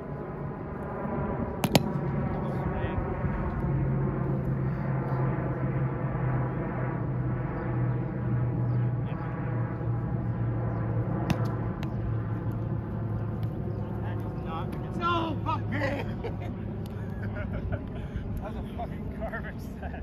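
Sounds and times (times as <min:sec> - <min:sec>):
low mechanical motor hum: 0:00.0 - 0:20.0
sharp tap: 0:01.6 - 0:01.9, 0:11.2 - 0:12.0.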